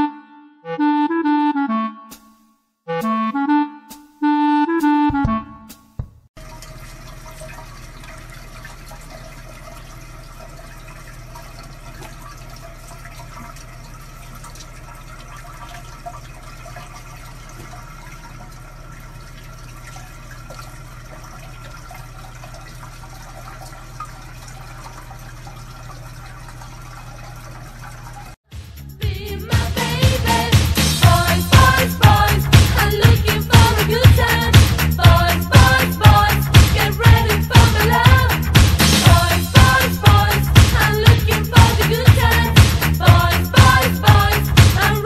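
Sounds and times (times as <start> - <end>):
water running into sink: 6.4 - 28.4.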